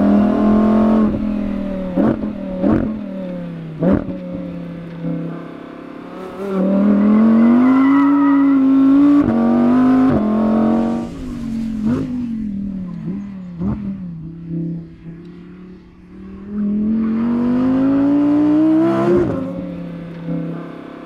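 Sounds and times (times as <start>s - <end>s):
sports car engine accelerating: 0.0s - 21.0s.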